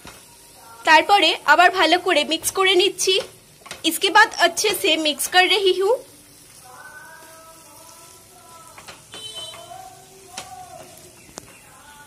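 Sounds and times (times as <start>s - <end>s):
rice rustling in pan: 1.9s - 12.0s.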